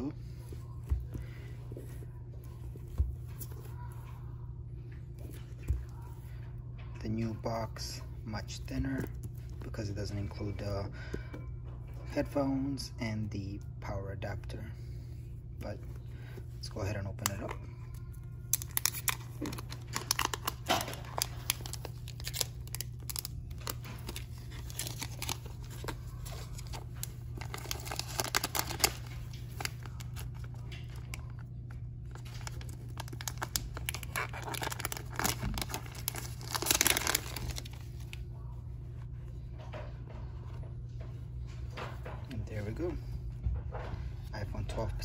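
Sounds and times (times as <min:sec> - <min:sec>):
sealing strip tearing and crinkling: 0:18.5 - 0:30.5, 0:32.1 - 0:38.1.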